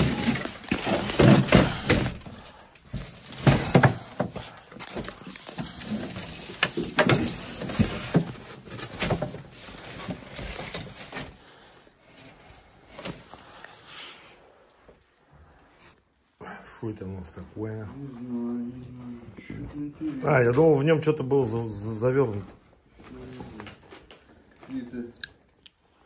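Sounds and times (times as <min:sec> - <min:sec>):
wooden boards and boxes clattering: 0:00.0 - 0:11.4
plastic bags rustling: 0:00.0 - 0:15.6.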